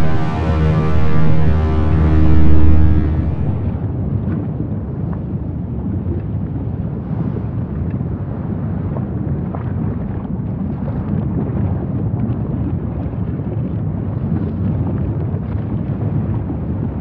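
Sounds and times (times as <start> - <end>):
deep rumble: 0.0 - 4.6.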